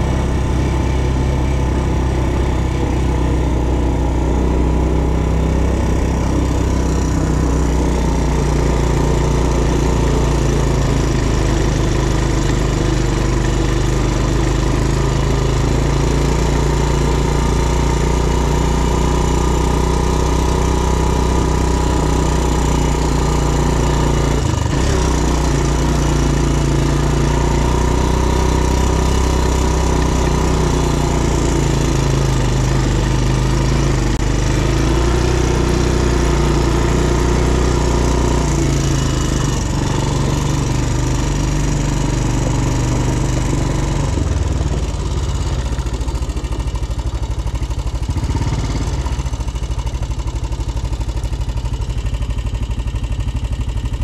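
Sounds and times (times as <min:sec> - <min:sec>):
atv engine running: 0:00.0 - 0:54.0.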